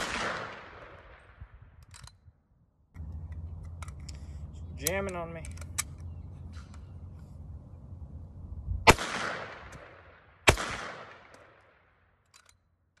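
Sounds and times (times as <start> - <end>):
rifle shots with echo: 0.0 - 1.6, 8.8 - 12.2.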